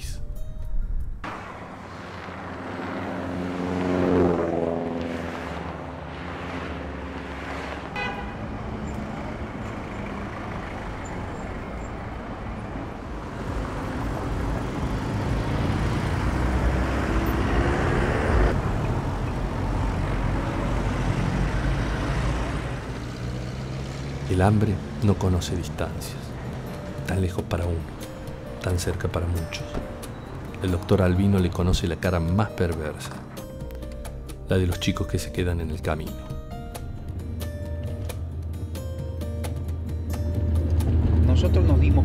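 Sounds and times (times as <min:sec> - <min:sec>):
street traffic hum: 0:01.1 - 0:42.0
vehicle passing: 0:01.2 - 0:32.1, 0:39.7 - 0:42.0
vehicle engine rising in pitch: 0:01.3 - 0:27.1, 0:39.9 - 0:42.0.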